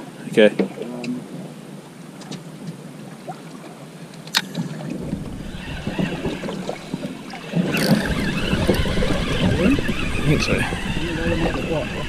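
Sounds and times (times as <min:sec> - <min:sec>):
water slapping boat hull: 0:01.8 - 0:12.0
wind on microphone: 0:04.4 - 0:12.0.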